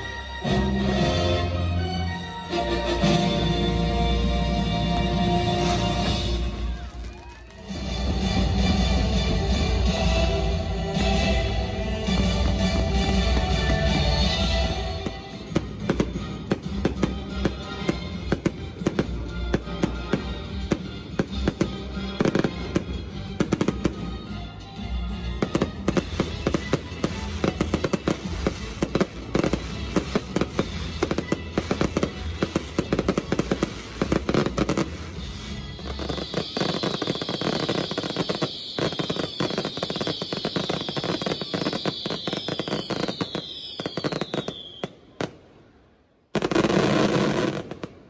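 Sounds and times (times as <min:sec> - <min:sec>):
fireworks bangs and crackles: 0:03.0 - 0:48.0
falling firework whistles: 0:05.6 - 0:07.8, 0:25.6 - 0:45.4.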